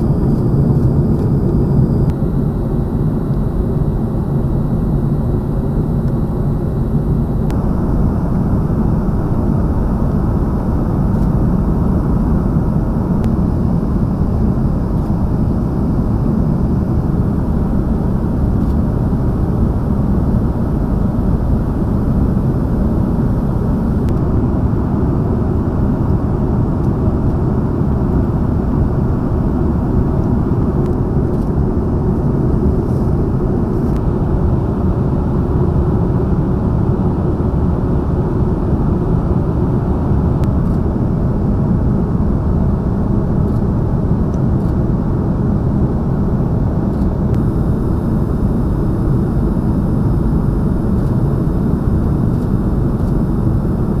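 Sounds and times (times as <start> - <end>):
rushing air in cabin: 0.0 - 26.6, 30.0 - 37.1
aircraft engines rumbling: 0.0 - 54.0.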